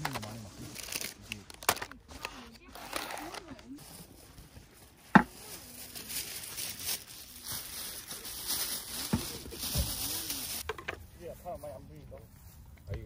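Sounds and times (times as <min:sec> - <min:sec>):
bag and packaging crinkling: 0:00.0 - 0:10.6
items knocking on wooden table: 0:05.1 - 0:05.3.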